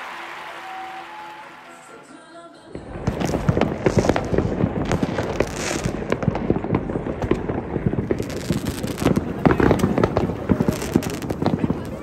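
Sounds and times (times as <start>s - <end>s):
fireworks bangs and crackling: 2.7s - 12.0s.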